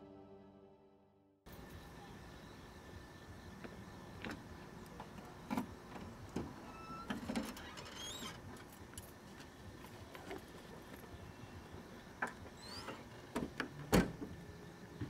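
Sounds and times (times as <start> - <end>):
faint high squeaks: 6.6 - 8.4, 12.6 - 13.1.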